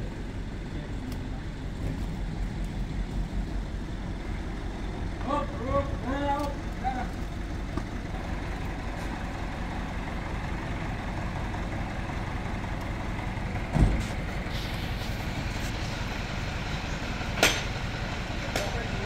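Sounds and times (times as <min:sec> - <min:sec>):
diesel engine idling: 0:00.0 - 0:19.0
loud thump: 0:13.7 - 0:14.1.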